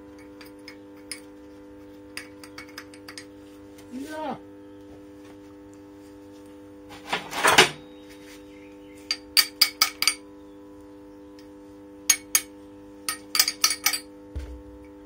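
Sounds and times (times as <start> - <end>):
steel parts clattering on workbench: 7.0 - 7.8.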